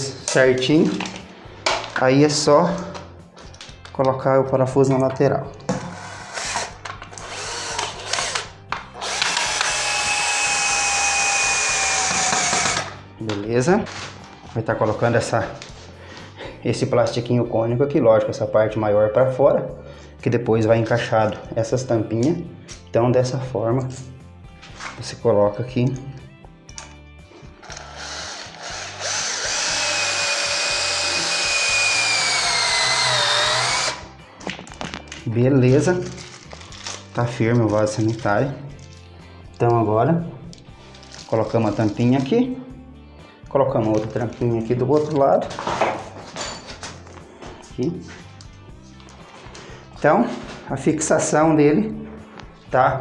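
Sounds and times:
cordless drill driving screw: 0:06.0 - 0:13.0, 0:27.6 - 0:34.1.

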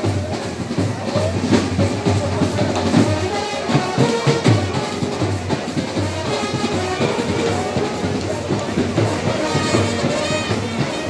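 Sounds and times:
drum strokes: 0:00.0 - 0:11.0
brass horns playing held notes: 0:03.1 - 0:11.0.

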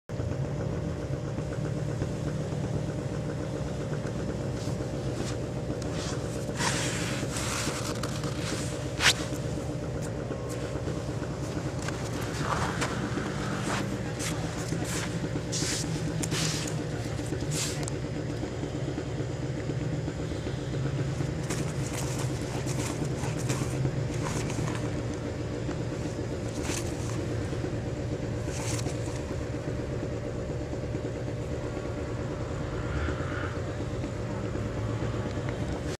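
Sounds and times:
engine humming: 0:00.1 - 0:35.9
short crunching or hissing: 0:05.2 - 0:09.4, 0:12.0 - 0:17.9.

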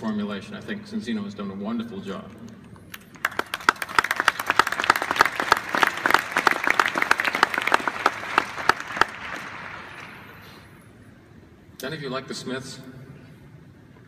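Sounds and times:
crowd clapping: 0:02.9 - 0:10.4.

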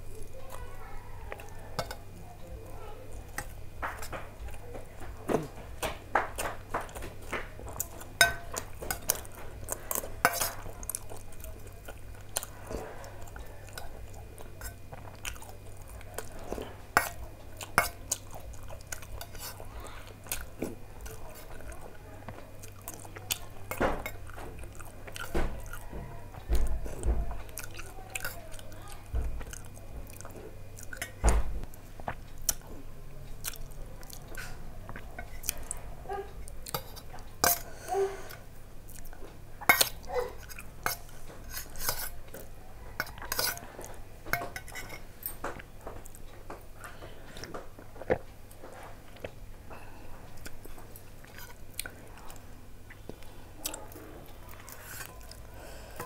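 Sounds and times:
chewing: 0:00.1 - 0:56.0
spoon clinking on metal bowl: 0:08.2 - 0:09.2.

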